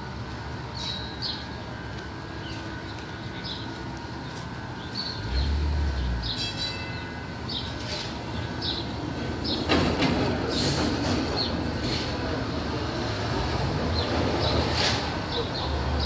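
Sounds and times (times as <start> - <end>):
streetcar rumble: 0.0 - 16.0
wheel-on-rail noise: 0.0 - 16.0.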